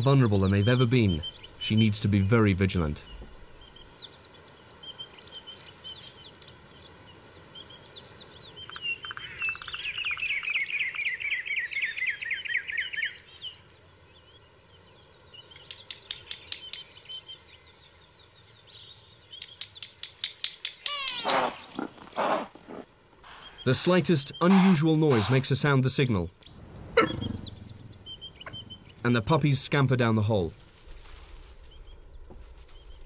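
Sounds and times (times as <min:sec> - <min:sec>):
birds chirping: 0:00.0 - 0:33.0
fast bird trill: 0:19.4 - 0:22.4.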